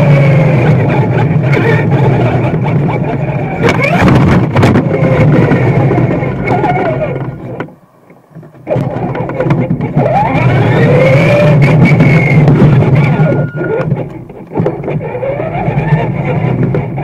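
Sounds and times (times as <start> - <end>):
toy car motor whine: 0.0 - 7.4, 8.6 - 17.0
wind noise: 0.0 - 7.6, 8.3 - 17.0
tyres rumbling on asphalt: 0.0 - 17.0.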